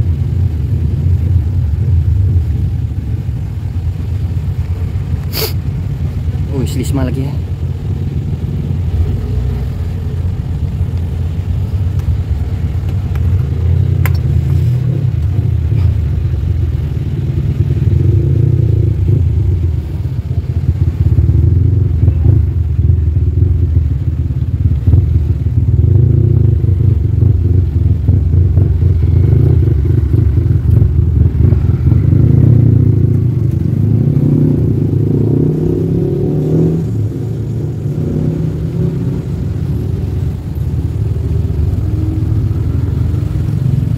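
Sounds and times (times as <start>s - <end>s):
truck diesel engine rumbling: 0.0s - 43.9s.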